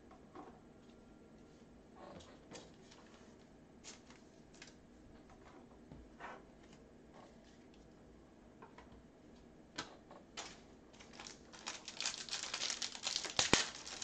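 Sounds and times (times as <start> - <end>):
foil wrapper crinkling: 10.4 - 14.0.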